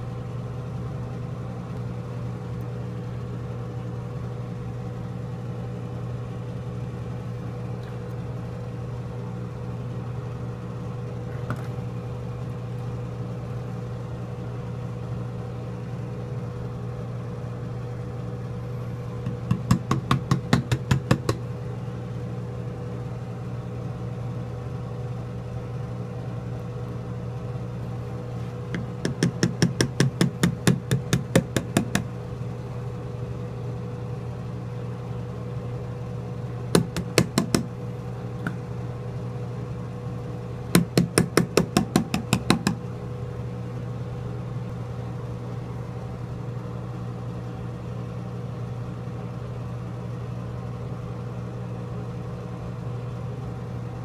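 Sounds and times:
low electrical hum: 0:00.0 - 0:54.0
rapid even knocking: 0:19.3 - 0:21.4, 0:28.8 - 0:32.1, 0:36.8 - 0:37.7, 0:40.8 - 0:42.8.

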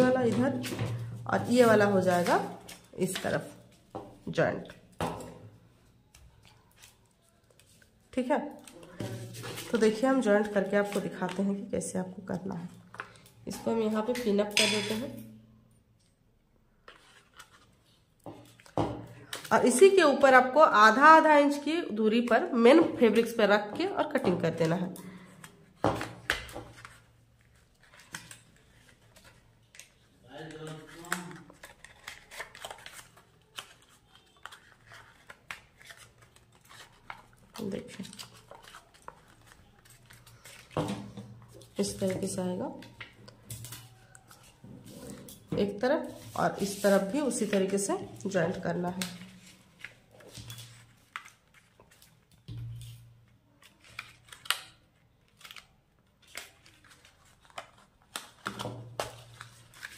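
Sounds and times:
stiff paper rustling: 0:25.1 - 0:43.0, 0:43.6 - 0:47.9, 0:48.6 - 0:59.9.

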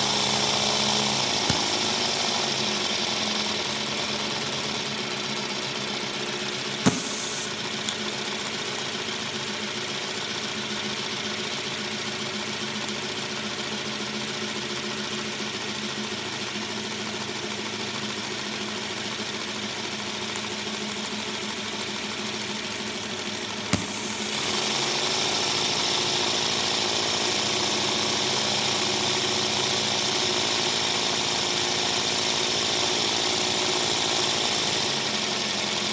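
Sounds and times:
model locomotive running: 0:00.0 - 0:05.7, 0:23.2 - 0:35.9
sharp click: 0:01.4 - 0:02.1, 0:06.9 - 0:08.1, 0:23.8 - 0:24.6
brief hiss: 0:06.9 - 0:07.5.

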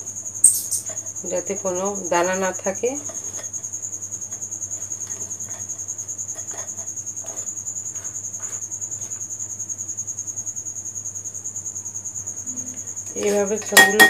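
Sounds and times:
cricket chirping: 0:00.0 - 0:14.0.

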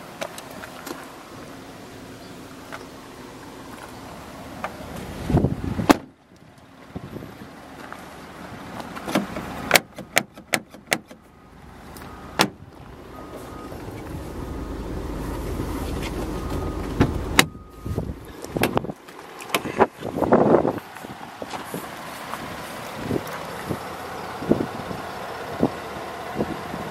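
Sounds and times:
car door clicks and knocks: 0:05.9 - 0:06.1, 0:09.0 - 0:11.2, 0:12.4 - 0:12.6
low rushing noise: 0:11.6 - 0:18.4
faint beeping: 0:13.0 - 0:18.4.

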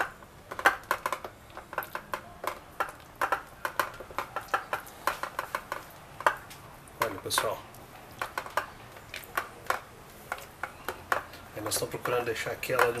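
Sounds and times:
hands pressing sticky dough: 0:00.0 - 0:13.0.

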